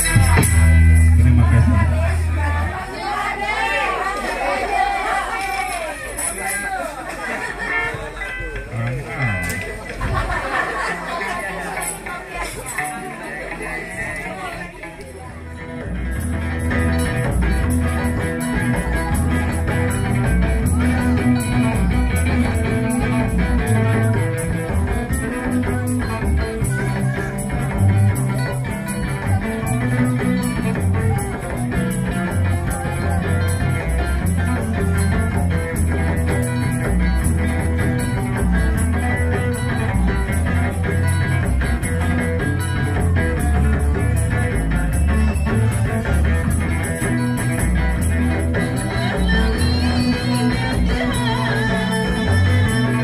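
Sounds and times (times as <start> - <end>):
plucked strings: 0.0 - 3.5, 7.8 - 53.0
rhythmic bass line: 0.0 - 5.2, 7.3 - 53.0.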